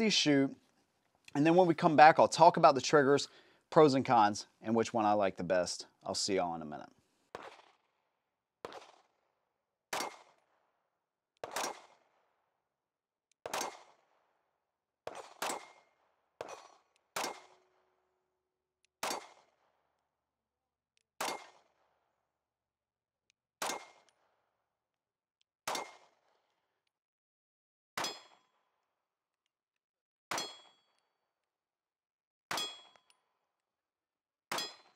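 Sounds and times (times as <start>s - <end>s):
pistol shots: 7.3s - 7.9s, 8.6s - 9.2s, 9.9s - 10.6s, 11.4s - 12.3s, 13.4s - 14.3s, 15.0s - 17.8s, 19.0s - 19.7s, 21.2s - 21.9s, 23.6s - 24.2s, 25.7s - 26.4s.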